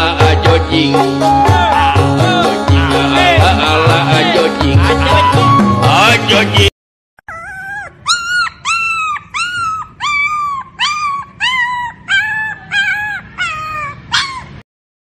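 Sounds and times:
dog yipping: 7.3s - 14.6s.

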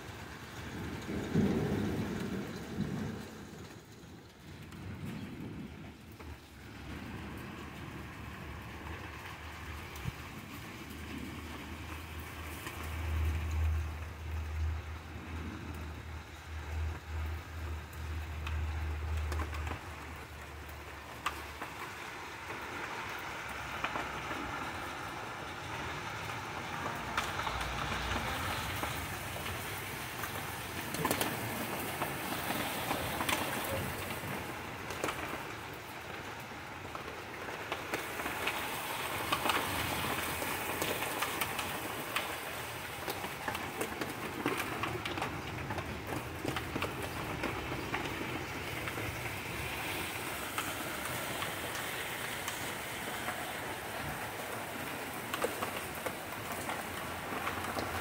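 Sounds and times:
rain falling: 0.0s - 58.0s
raindrops ticking: 0.0s - 58.0s.

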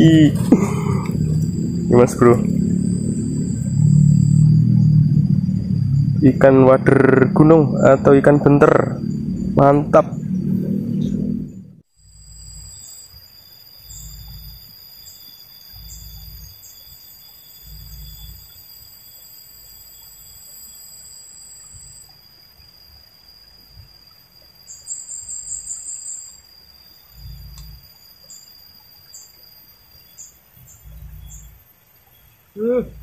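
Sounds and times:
soft low rumbles: 0.0s - 12.6s
insects buzzing: 0.0s - 33.0s
pulsing insect buzz: 0.0s - 33.0s.

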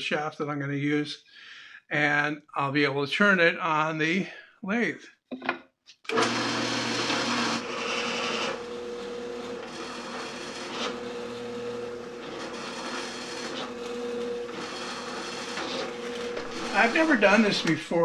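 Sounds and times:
drill press boring into wood: 6.1s - 17.9s.

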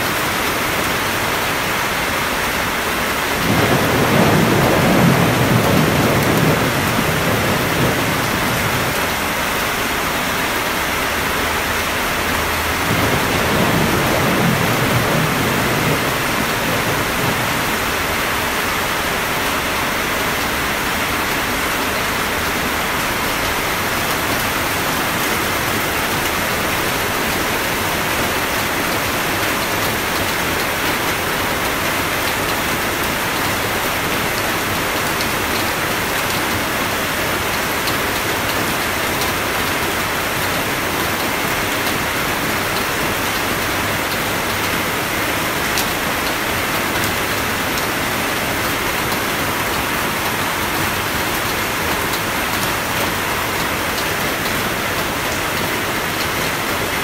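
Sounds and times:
steady rain hissing: 0.0s - 57.0s
thunder rumble: 3.4s - 9.4s, 12.6s - 19.1s.

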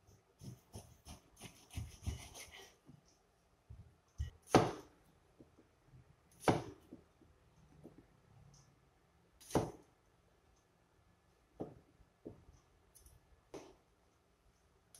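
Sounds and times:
cleaver chopping on board: 4.5s - 4.9s, 6.4s - 6.8s.

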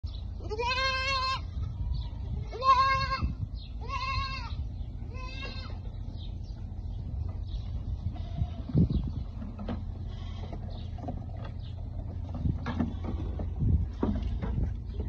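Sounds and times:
low steady rumble: 0.0s - 15.0s
young goats bleating: 0.3s - 6.3s, 7.5s - 11.0s.

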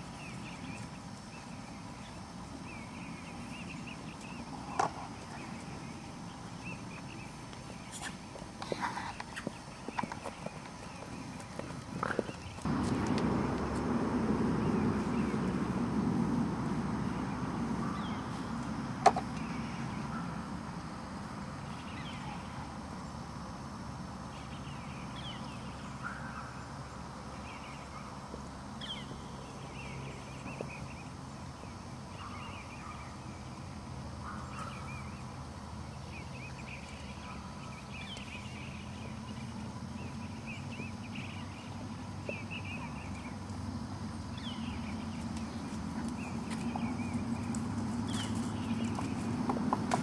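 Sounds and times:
birds chirping: 0.0s - 23.2s, 24.2s - 50.0s
steady low rumble: 9.6s - 26.0s, 33.4s - 50.0s.

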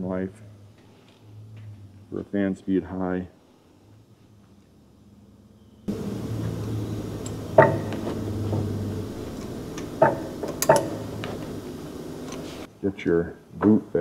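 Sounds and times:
steady low hum: 0.0s - 14.0s
sharp metallic clicks and knocks: 6.6s - 11.5s.

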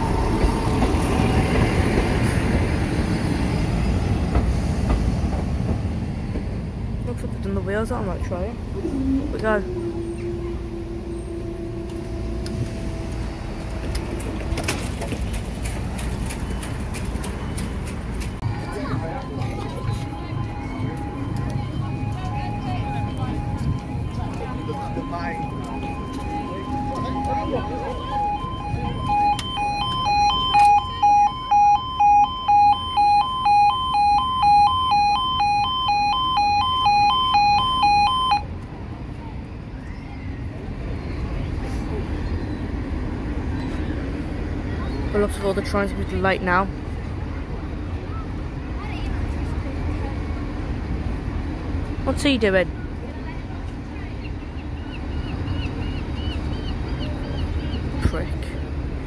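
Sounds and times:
low traffic rumble: 0.0s - 59.0s
footsteps: 12.6s - 30.7s
two-tone warning alarm: 18.5s - 38.5s.

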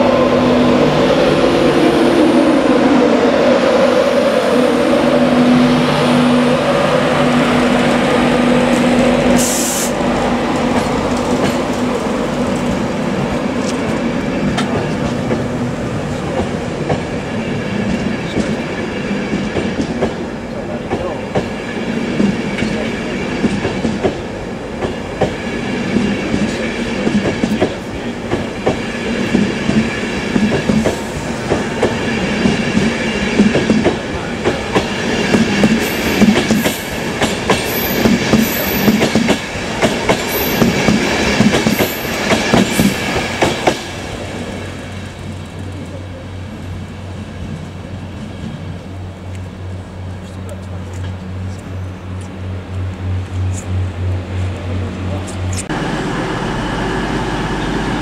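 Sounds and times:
electric locomotive humming: 0.0s - 58.0s
train wheels clicking over rail joints: 8.5s - 12.8s, 20.8s - 44.2s.

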